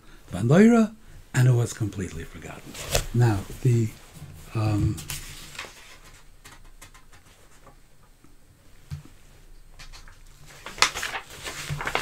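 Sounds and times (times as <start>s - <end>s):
paper rustling: 2.5s - 3.9s, 4.9s - 7.8s, 9.8s - 12.0s.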